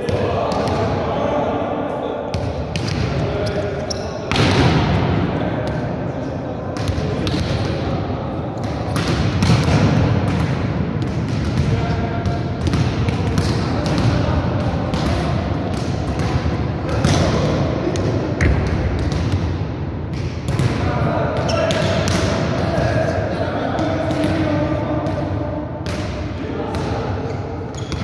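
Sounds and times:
volleyballs thudding echoing: 0:04.3 - 0:06.0, 0:08.6 - 0:27.2.

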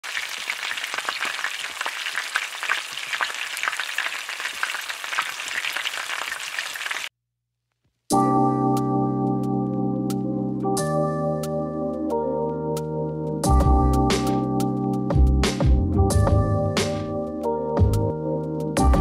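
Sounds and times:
crackling sizzle with pops: 0:00.0 - 0:07.1
soft keyboard music: 0:08.1 - 0:19.0.

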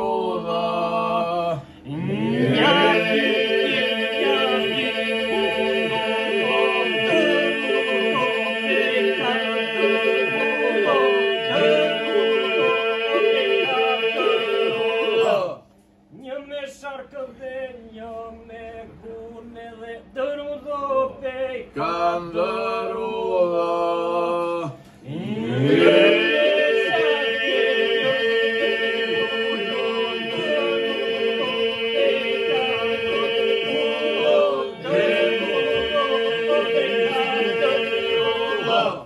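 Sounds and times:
man singing solo ornamented phrases: 0:00.0 - 0:15.6
men singing a held drone: 0:00.0 - 0:15.6, 0:20.5 - 0:39.0.

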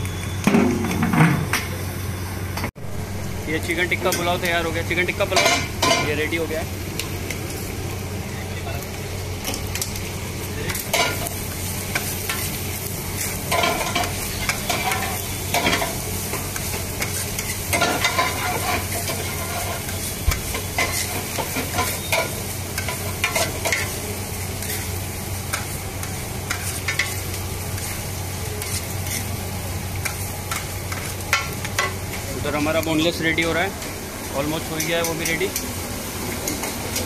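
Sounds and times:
food sizzling: 0:00.0 - 0:37.0
metal spatula clanking on griddle: 0:05.3 - 0:06.2, 0:13.5 - 0:23.9.

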